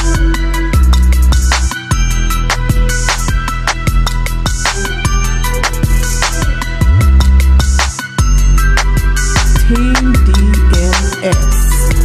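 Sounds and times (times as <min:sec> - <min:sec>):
electronic beat music: 0:02.5 - 0:11.3.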